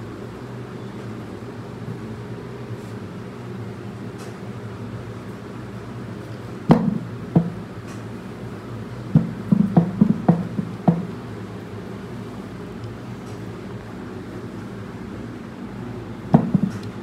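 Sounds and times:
steady low hum: 0:00.0 - 0:17.0
knocks on a hard surface: 0:06.7 - 0:07.6, 0:09.1 - 0:11.1, 0:16.3 - 0:16.8.

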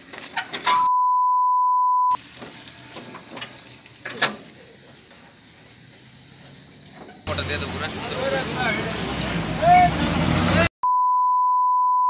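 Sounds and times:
censor bleep tone: 0:00.9 - 0:02.2, 0:10.8 - 0:12.0.

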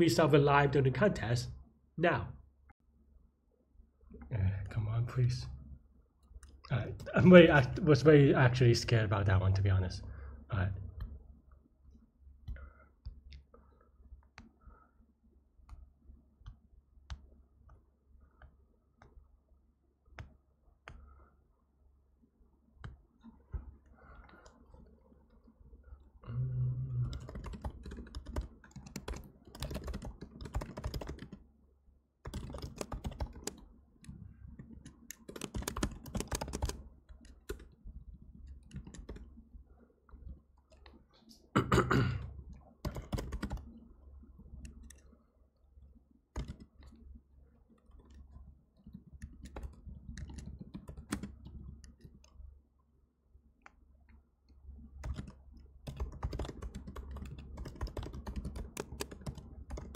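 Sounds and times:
computer keyboard typing: 0:26.9 - 0:31.4, 0:32.2 - 0:37.8, 0:38.4 - 0:39.3, 0:42.8 - 0:43.7, 0:44.6 - 0:45.1, 0:46.4 - 0:47.0, 0:47.8 - 0:52.3, 0:55.0 - 0:59.9.

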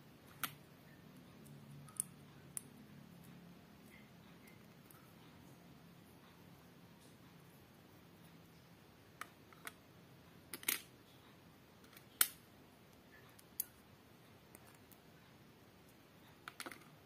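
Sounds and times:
plastic bricks clicking together: 0:16.4 - 0:17.0.

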